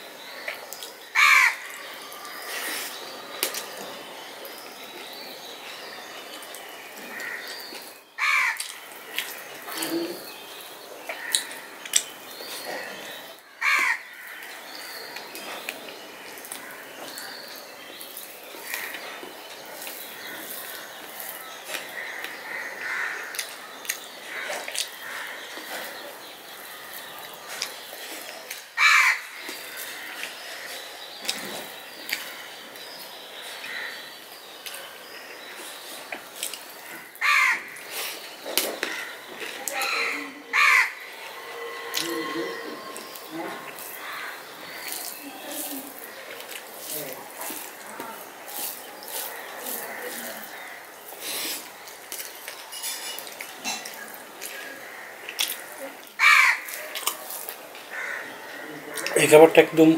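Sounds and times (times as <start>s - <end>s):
crow cawing: 1.2s - 1.8s, 8.2s - 8.7s, 13.6s - 14.5s, 22.0s - 23.5s, 28.8s - 30.2s, 36.9s - 37.8s, 38.8s - 45.2s, 54.6s - 56.9s, 57.9s - 59.2s
close-up chewing and mouth sounds: 23.3s - 28.6s, 35.5s - 37.0s, 42.9s - 57.9s.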